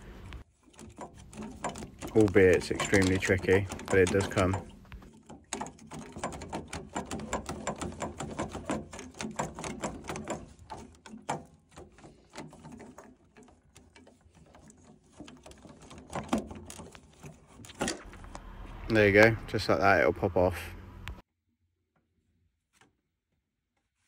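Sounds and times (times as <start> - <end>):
plastic clicks and rattles: 0.0 - 18.5.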